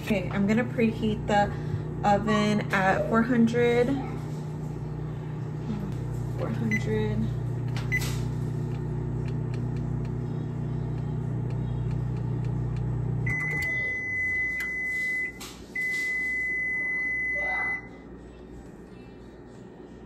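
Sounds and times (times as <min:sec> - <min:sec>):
microwave oven humming: 0:00.0 - 0:20.0
microwave long beeps: 0:06.6 - 0:07.2, 0:07.8 - 0:18.0.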